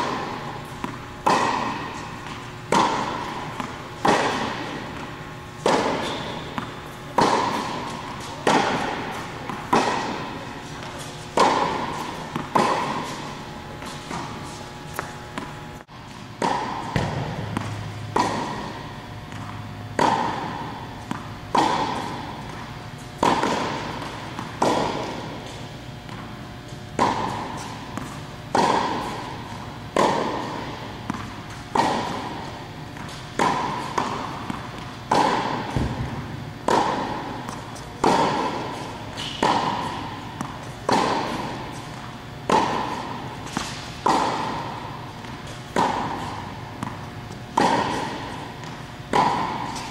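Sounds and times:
tennis balls struck by rackets: 0.0s - 49.9s.

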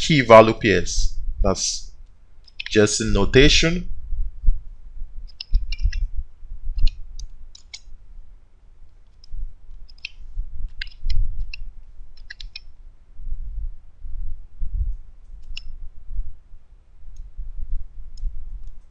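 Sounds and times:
keyboard keystroke clicks: 2.5s - 2.8s, 6.8s - 7.9s, 9.8s - 11.6s, 12.2s - 12.7s.

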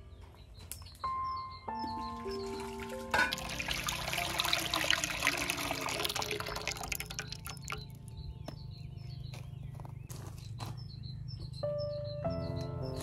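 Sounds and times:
birds chirping: 0.0s - 13.0s
pulp pouring into metal pot: 3.1s - 8.0s.

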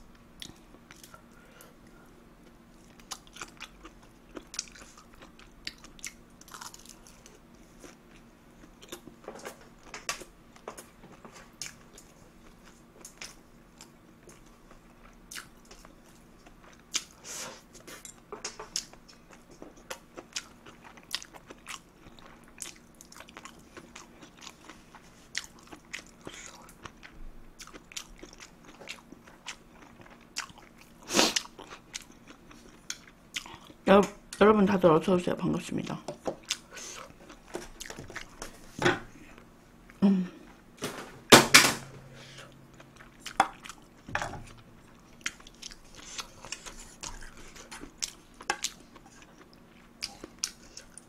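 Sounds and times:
person chewing food: 0.4s - 34.4s, 36.2s - 40.6s, 42.1s - 51.0s.

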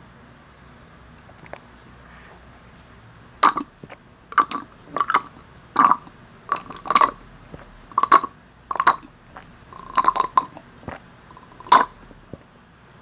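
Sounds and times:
slurping through a straw: 1.2s - 1.8s, 3.4s - 12.4s
swallowing gulps: 1.2s - 1.8s, 3.4s - 12.5s.

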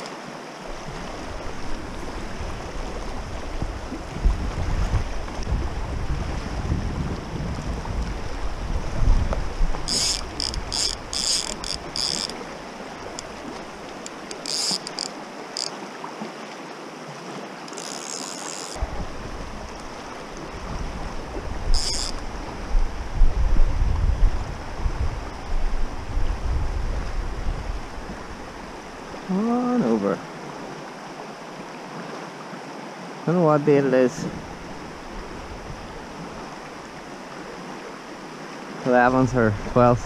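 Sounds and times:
river rushing over stones: 0.0s - 40.0s
wind buffeting microphone: 0.7s - 14.0s, 18.8s - 28.8s, 34.2s - 36.7s
fishing reel ratchet buzzing: 9.8s - 12.4s, 14.0s - 15.8s, 17.7s - 18.8s, 21.7s - 22.2s.

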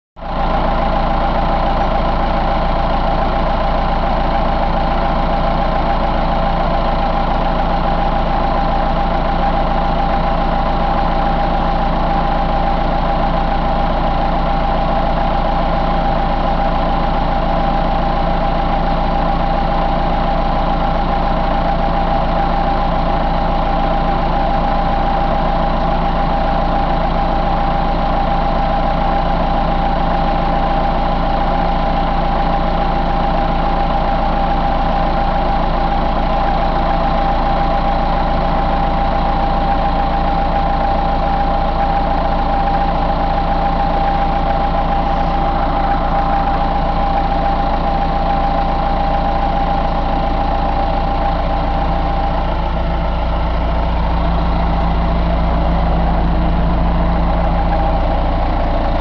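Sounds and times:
diesel engine idling: 0.2s - 59.0s
steady high tone: 44.8s - 48.1s, 52.7s - 59.0s.

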